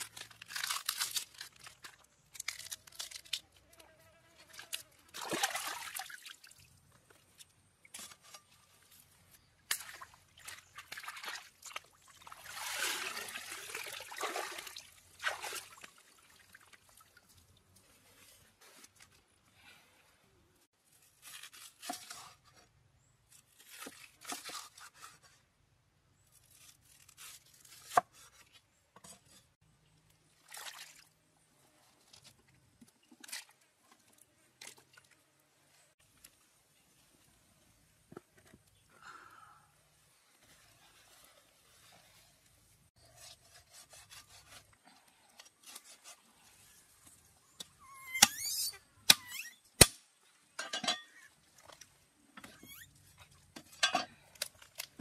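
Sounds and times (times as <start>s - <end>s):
water pouring and trickling: 9.8s - 17.9s.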